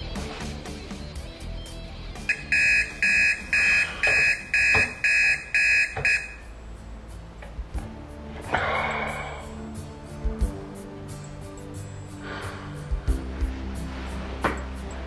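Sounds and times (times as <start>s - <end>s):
quiet background music: 0.0s - 15.0s
alarm clock beeping: 2.3s - 6.6s.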